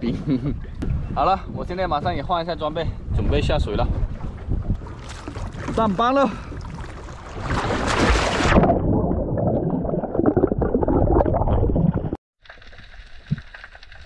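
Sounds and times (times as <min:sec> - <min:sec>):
muffled underwater bubbling: 0:08.6 - 0:12.2.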